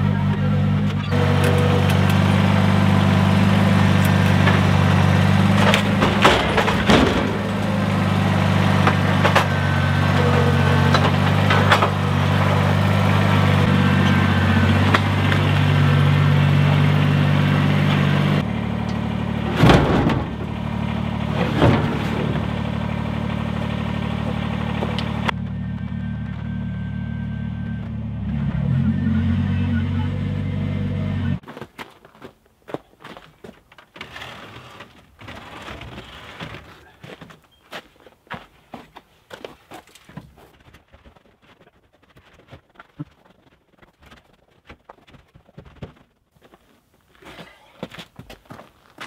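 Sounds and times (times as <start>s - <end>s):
diesel tractor engine running: 0.0s - 31.4s
loader clanks and knocks: 0.1s - 26.6s, 33.4s - 37.4s.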